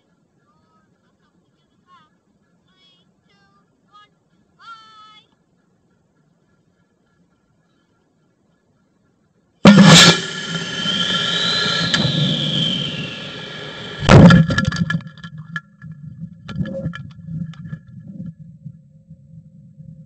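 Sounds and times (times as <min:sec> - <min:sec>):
rocket motor igniting: 0:09.6 - 0:15.3
rocket thrust rush and whistle: 0:09.7 - 0:15.0
ejection charge bang: 0:09.7 - 0:15.2
rattling: 0:09.7 - 0:18.0.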